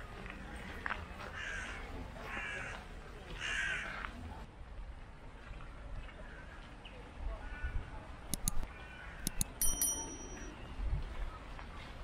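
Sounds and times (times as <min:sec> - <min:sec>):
faint outdoor background: 0:00.0 - 0:12.0
crow cawing: 0:01.4 - 0:02.8, 0:03.4 - 0:04.0.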